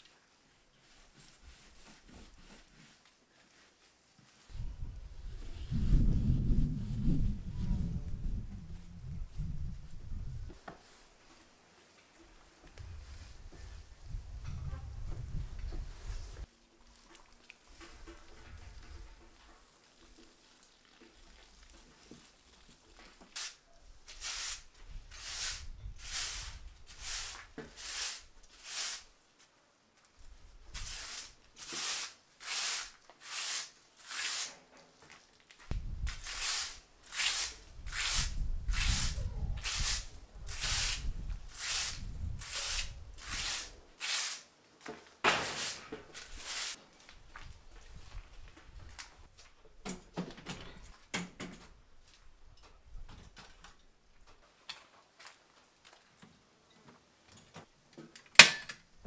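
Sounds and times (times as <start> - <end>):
broom sweeping concrete floor: 0.0 - 8.2, 10.5 - 14.2, 15.2 - 16.5, 21.7 - 29.5, 30.4 - 47.0.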